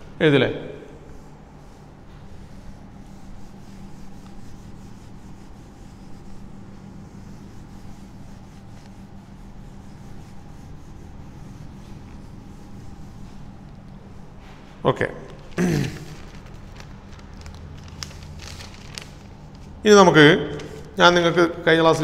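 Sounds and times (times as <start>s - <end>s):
steady low hum: 0.0s - 22.0s
duster rubbing on whiteboard: 1.0s - 14.8s.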